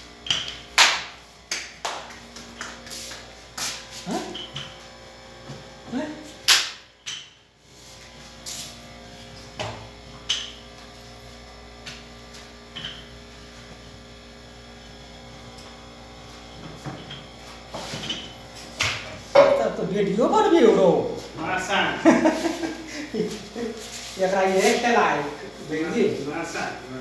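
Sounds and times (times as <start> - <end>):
steady electrical hum: 0.0 - 27.0
frying pan and utensils knocking: 19.4 - 19.7.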